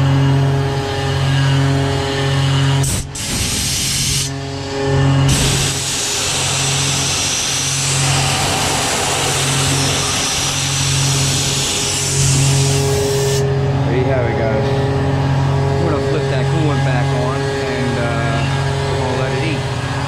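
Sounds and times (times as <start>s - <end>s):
mill spindle hum: 0.0s - 20.0s
hiss of metal cutting: 2.8s - 4.4s, 5.3s - 13.4s.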